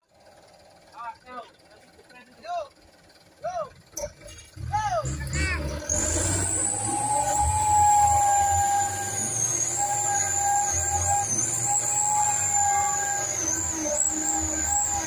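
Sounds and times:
diesel engine low rumble: 0.0 - 15.0
high wavering whine: 6.2 - 15.0.

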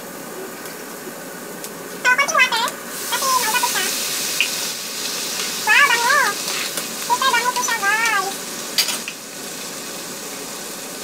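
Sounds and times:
onions sizzling in a frying pan: 0.0 - 11.0
high wavering cry: 5.6 - 6.4.

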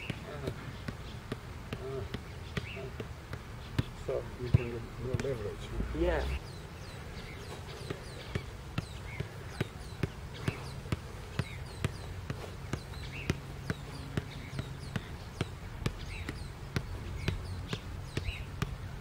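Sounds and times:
soccer ball kicks: 0.0 - 19.0.

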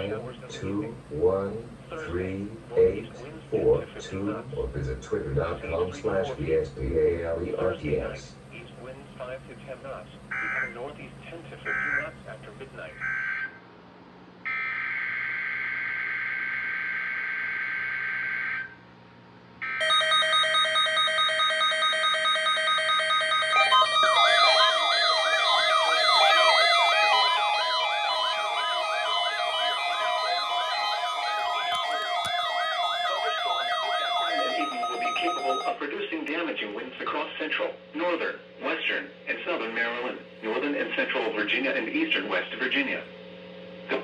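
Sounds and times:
alarm beeps: 10.3 - 10.8, 11.7 - 12.2, 19.6 - 35.8
fast warbling siren: 10.3 - 10.8, 13.0 - 13.6, 14.4 - 18.8, 19.6 - 35.8
electronic data tone: 10.3 - 10.9, 11.6 - 12.2, 19.6 - 35.8.

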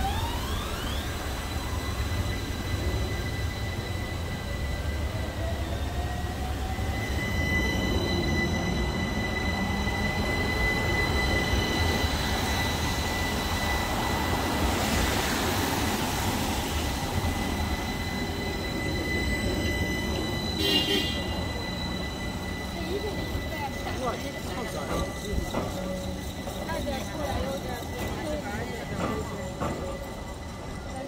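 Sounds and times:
high-pitched wheel squeal: 0.0 - 31.0
tram rail rumble: 0.0 - 31.0.

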